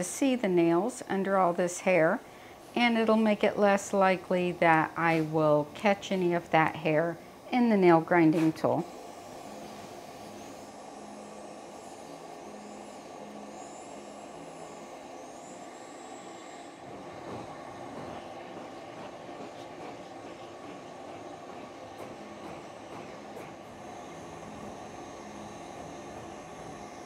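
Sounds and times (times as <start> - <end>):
steady rushing machine noise: 8.8 - 27.0.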